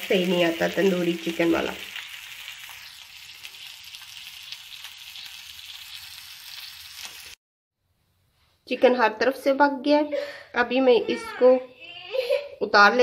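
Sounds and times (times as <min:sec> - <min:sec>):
chicken sizzling on a griddle: 0:00.0 - 0:07.4.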